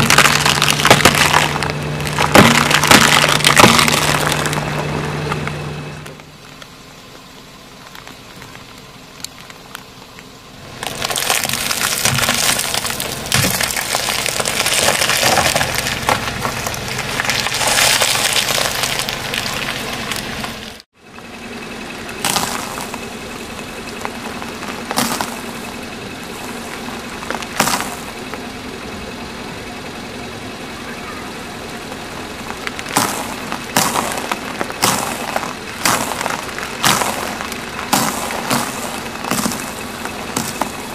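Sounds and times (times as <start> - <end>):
tyre crushing brittle objects: 0.0 - 6.7, 10.8 - 20.9, 22.2 - 23.1, 23.8 - 28.4, 32.4 - 40.9
sharp cracks: 0.0 - 6.8, 7.8 - 20.8, 22.2 - 28.5, 31.9 - 40.9.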